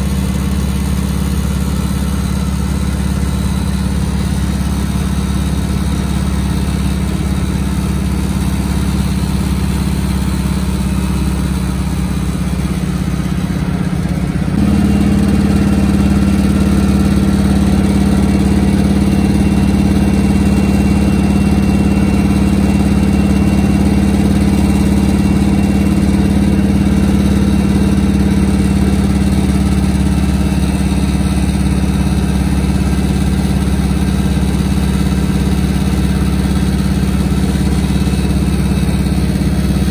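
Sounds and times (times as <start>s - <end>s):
radial aircraft engine droning: 0.0s - 39.9s.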